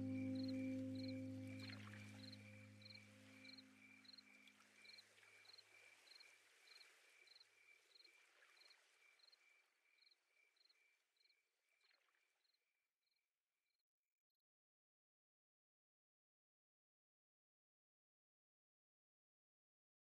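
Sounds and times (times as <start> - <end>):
background music: 0.0 - 3.1.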